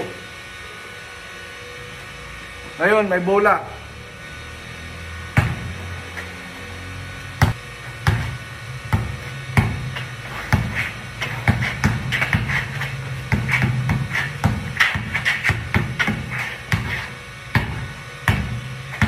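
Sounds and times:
basketball bouncing on concrete: 0:05.2 - 0:06.3, 0:07.4 - 0:19.0.

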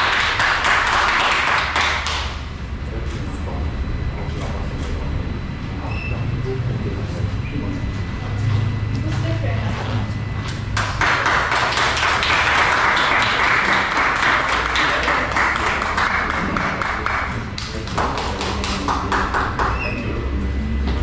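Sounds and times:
people clapping: 0:00.0 - 0:02.4, 0:10.7 - 0:20.0.

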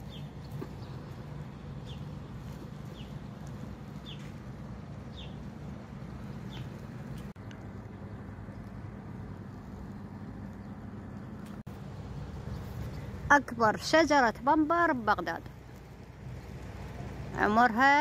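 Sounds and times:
bird chirping: 0:00.0 - 0:02.2, 0:02.8 - 0:03.2, 0:04.0 - 0:04.4, 0:05.0 - 0:05.5, 0:06.2 - 0:07.3
low hum: 0:00.0 - 0:17.9.

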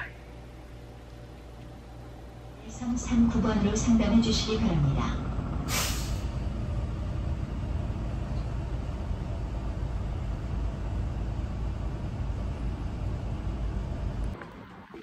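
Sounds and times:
bus engine rumble: 0:00.0 - 0:15.0.

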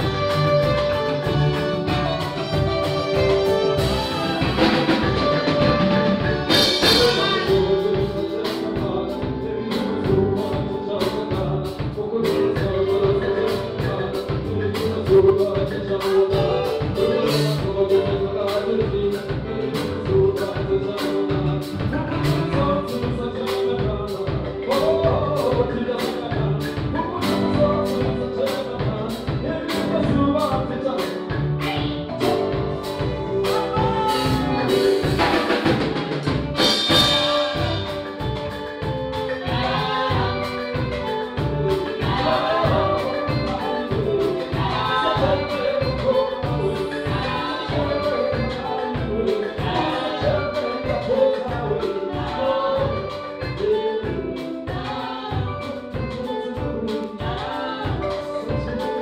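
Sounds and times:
drum kit beat: 0:00.0 - 0:59.0
electric bass: 0:00.0 - 0:59.0
guitar: 0:00.0 - 0:59.0
marimba: 0:00.0 - 0:59.0
man singing into a microphone: 0:06.4 - 0:31.5, 0:39.4 - 0:59.0.

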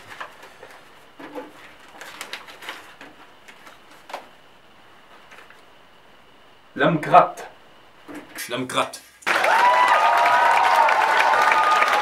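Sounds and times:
paper rustling and crinkling: 0:00.0 - 0:04.3, 0:05.1 - 0:05.7.

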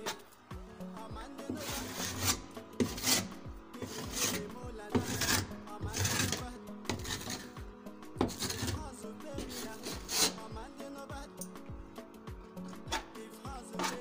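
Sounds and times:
pad rasping against plaster board: 0:01.5 - 0:07.6, 0:08.2 - 0:10.5.

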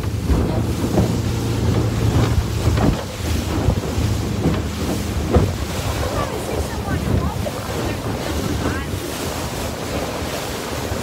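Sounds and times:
low engine hum: 0:00.0 - 0:11.0
water rushing past hull: 0:00.0 - 0:11.0
wind buffeting microphone: 0:00.0 - 0:11.0.

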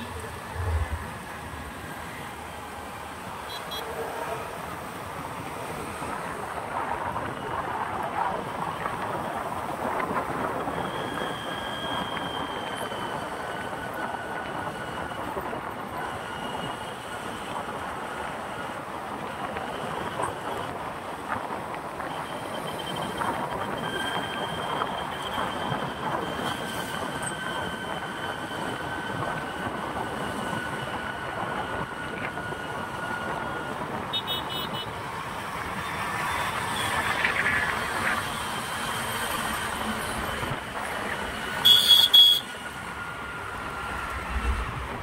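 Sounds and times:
high whine: 0:00.0 - 0:03.2
road traffic noise: 0:00.0 - 0:45.0
vehicle horn: 0:03.5 - 0:04.0, 0:34.1 - 0:34.9, 0:41.6 - 0:42.6.

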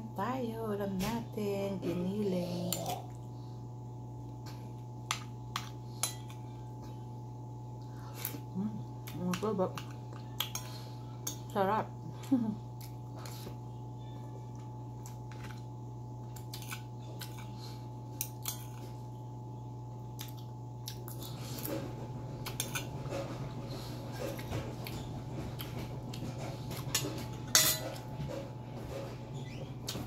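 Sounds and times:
steady low hum: 0:00.0 - 0:30.0
cutlery clinking on plates: 0:26.9 - 0:28.4.

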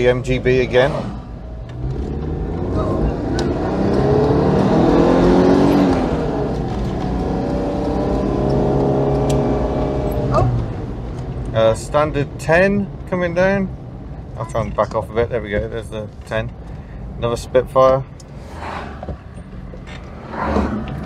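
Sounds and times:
car engine revving: 0:00.0 - 0:12.4, 0:18.2 - 0:21.0.

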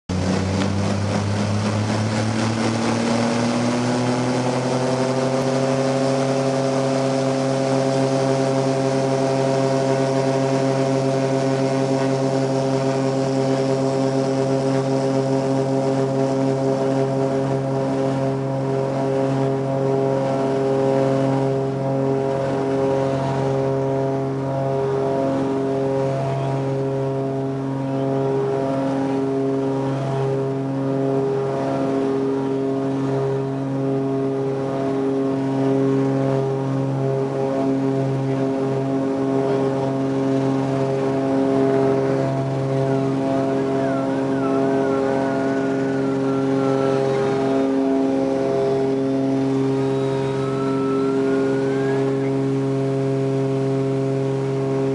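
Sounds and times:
propeller engines droning: 0:00.0 - 0:54.9
faint wavering high tone: 0:42.8 - 0:53.1.

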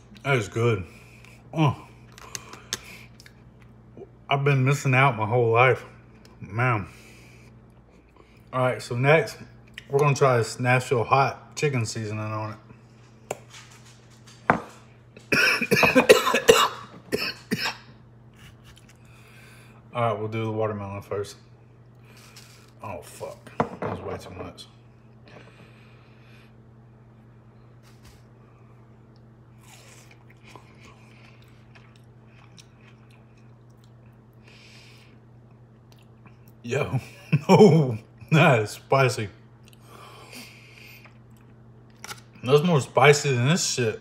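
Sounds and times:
man coughing: 0:15.3 - 0:17.9
person chewing watermelon: 0:18.3 - 0:19.3, 0:29.1 - 0:34.4, 0:35.4 - 0:36.6, 0:40.7 - 0:42.1.

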